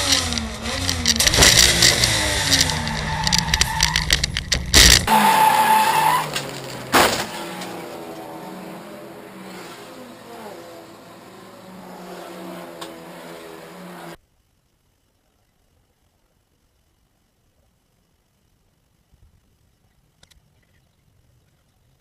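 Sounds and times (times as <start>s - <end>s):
race car engine at low revs: 0.0s - 14.2s
tyres skidding: 0.0s - 14.2s
loud thump: 6.3s - 7.9s.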